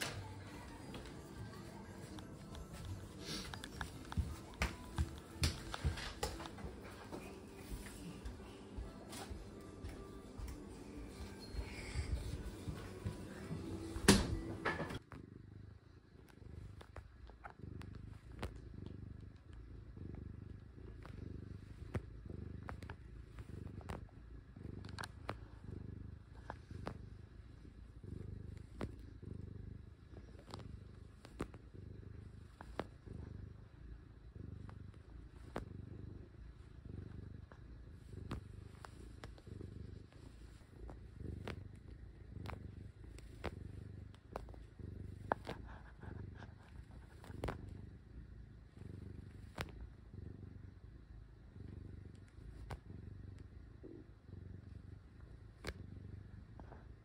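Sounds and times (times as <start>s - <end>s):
cat purring: 0.0s - 57.0s
small clicks of cat kneading: 20.5s - 24.2s, 24.8s - 25.6s, 28.4s - 29.2s, 30.2s - 33.1s, 34.6s - 35.7s, 38.3s - 47.9s, 49.2s - 49.9s, 52.1s - 53.5s, 55.5s - 55.8s.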